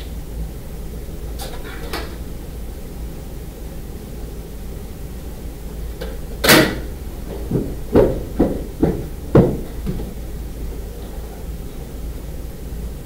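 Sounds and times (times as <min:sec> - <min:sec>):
steady low hum: 0:00.0 - 0:13.0
irregular knocks: 0:07.2 - 0:10.2.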